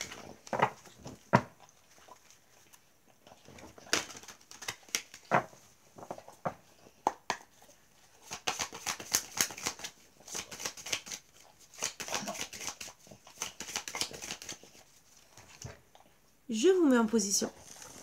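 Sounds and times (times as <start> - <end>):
cards being shuffled: 3.7 - 5.5, 8.2 - 14.8.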